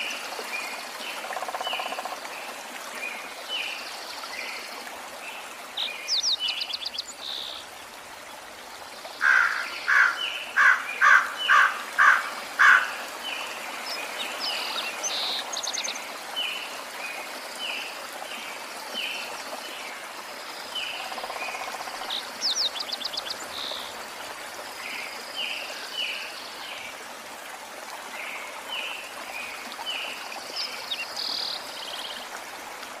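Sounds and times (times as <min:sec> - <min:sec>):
birds chirping and trilling: 0:09.2 - 0:13.0.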